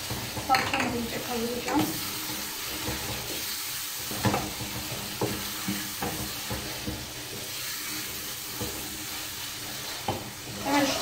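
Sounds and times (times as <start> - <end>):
onions sizzling in pot: 0.0 - 11.0
wooden spoon scraping pot: 0.0 - 11.0.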